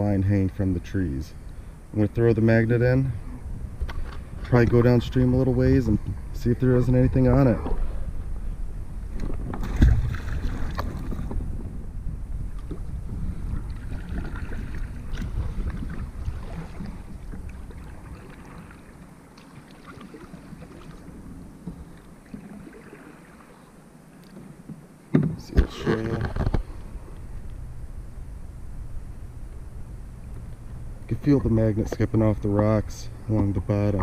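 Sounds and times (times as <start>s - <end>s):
wind rumbling on microphone: 0.0s - 23.6s, 25.2s - 34.0s
water sloshing around kayak: 9.0s - 11.8s, 12.4s - 27.4s
thump: 25.1s - 25.7s.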